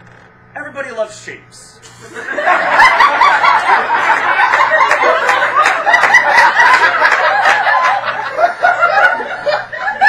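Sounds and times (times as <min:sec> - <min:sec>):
audience laughing: 0:01.9 - 0:10.0.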